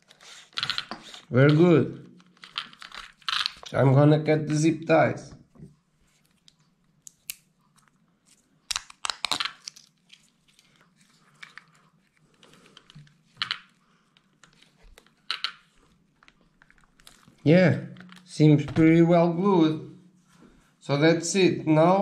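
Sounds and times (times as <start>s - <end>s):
plastic parts clicking: 0.4s - 3.7s.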